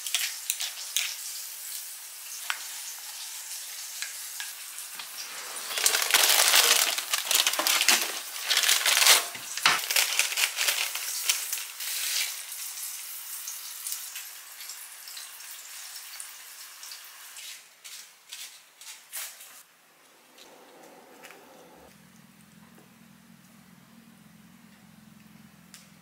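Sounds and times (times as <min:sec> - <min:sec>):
plastic packet rustling: 0:05.1 - 0:12.0.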